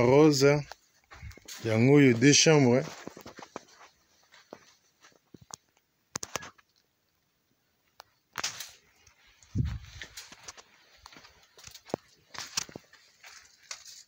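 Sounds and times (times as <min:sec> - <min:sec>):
faint footsteps and scuffing: 0:00.0 - 0:05.6, 0:08.4 - 0:14.0.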